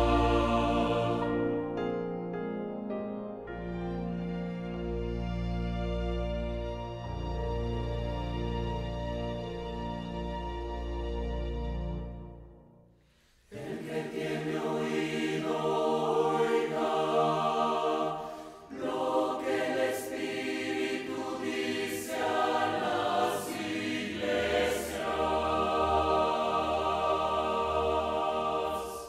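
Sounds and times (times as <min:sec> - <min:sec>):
mixed choir singing chords: 0:00.0 - 0:01.8, 0:12.2 - 0:29.0.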